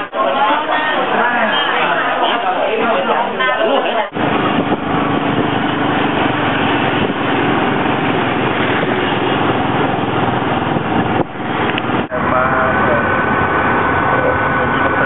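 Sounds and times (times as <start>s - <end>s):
road noise: 4.0s - 15.0s
small motorcycle engine running: 4.2s - 15.0s.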